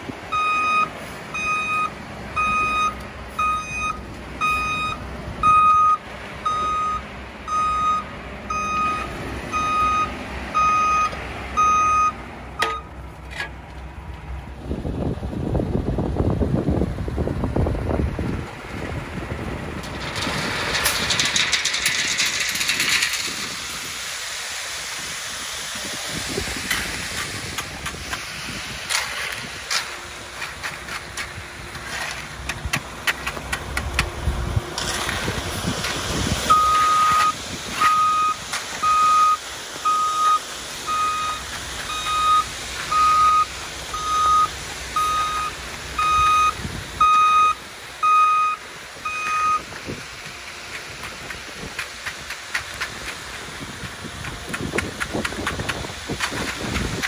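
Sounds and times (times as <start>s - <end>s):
truck engine humming: 0.0s - 57.0s
reversing alarm beeping: 0.3s - 13.0s, 36.5s - 49.7s
wet concrete sliding down chute: 19.8s - 47.0s, 48.6s - 57.0s.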